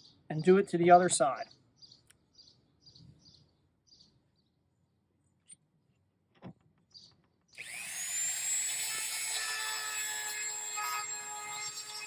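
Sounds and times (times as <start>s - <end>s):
bird chirps: 0.0s - 4.6s, 6.8s - 7.6s
rotary tool whine: 7.6s - 12.0s.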